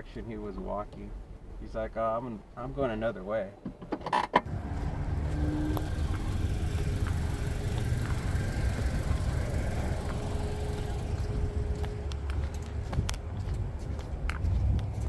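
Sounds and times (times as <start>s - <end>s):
car engine rumble from inside: 4.5s - 13.8s.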